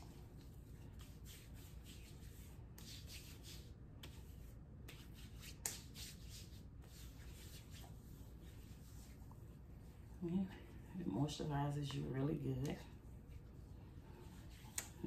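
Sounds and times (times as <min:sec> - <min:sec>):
hands rubbing lotion: 0:00.2 - 0:10.1, 0:14.3 - 0:15.0.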